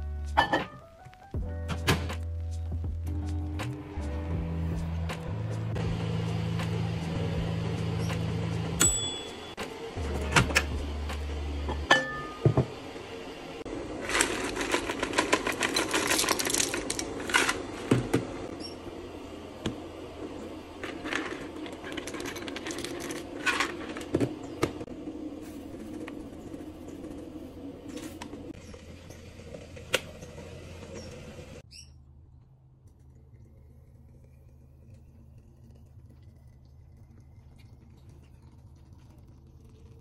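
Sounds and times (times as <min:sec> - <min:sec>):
low steady hum: 0:02.9 - 0:40.0
bowls and containers clinking: 0:11.7 - 0:12.8, 0:14.0 - 0:18.4, 0:20.8 - 0:24.8.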